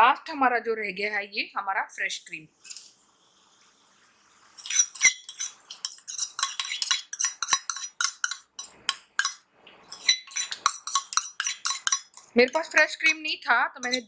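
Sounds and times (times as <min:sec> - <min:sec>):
metal spoon scraping steel bowl: 0:02.6 - 0:02.9, 0:04.6 - 0:14.0.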